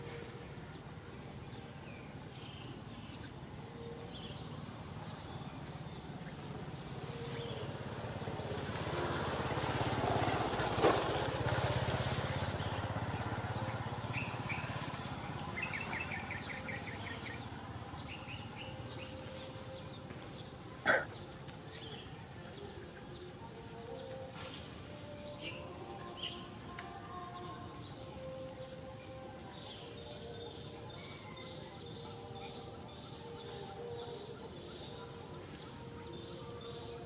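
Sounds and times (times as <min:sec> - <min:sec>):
small birds chirping: 0:00.0 - 0:37.0
distant vehicle passing: 0:03.8 - 0:23.2.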